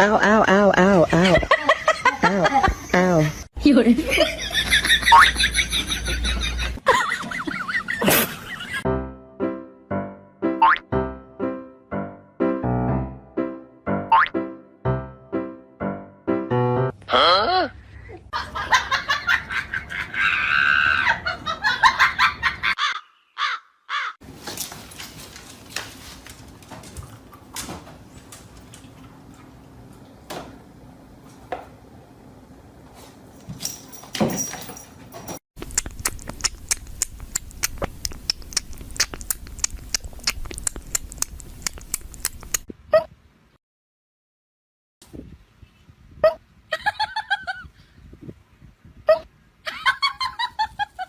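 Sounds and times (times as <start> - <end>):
cat sucking from bottle teat: 35.6 - 42.6.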